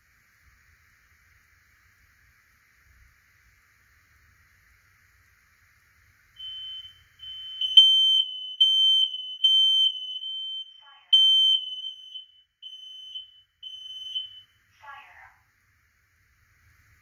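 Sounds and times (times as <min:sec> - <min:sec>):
smoke alarm beeping: 0:06.4 - 0:15.1
faint smoke alarm beeping: 0:06.4 - 0:15.2.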